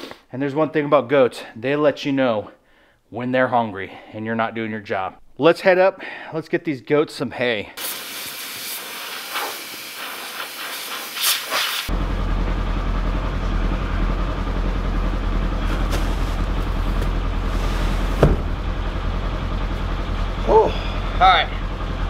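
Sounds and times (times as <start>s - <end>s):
garden hose spraying water: 7.8s - 11.9s
utility vehicle engine idling: 11.9s - 22.0s
thump: 18.1s - 18.6s.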